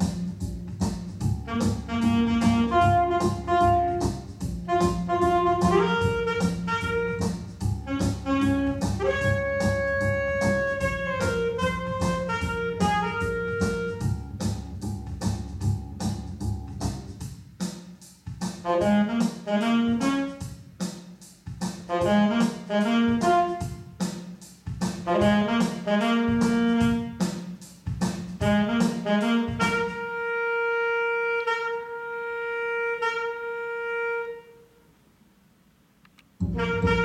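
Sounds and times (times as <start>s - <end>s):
accompaniment with ticking beat: 0.0s - 30.5s, 36.4s - 37.0s
soprano saxophone melody: 1.4s - 14.4s, 18.6s - 20.6s, 21.9s - 24.0s, 25.1s - 27.3s, 28.4s - 34.9s, 36.4s - 37.0s.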